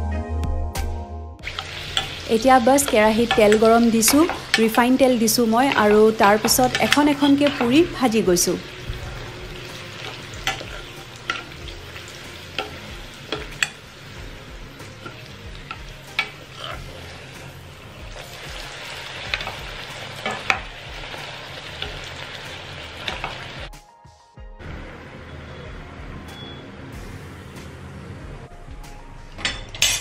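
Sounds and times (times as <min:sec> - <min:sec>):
deep-frying sizzle in oil: 0:01.4 - 0:23.7
metal spoon clicking on pan: 0:01.5 - 0:02.2, 0:02.8 - 0:04.8, 0:05.7 - 0:07.7, 0:10.0 - 0:11.6, 0:12.6 - 0:13.8, 0:15.0 - 0:16.4.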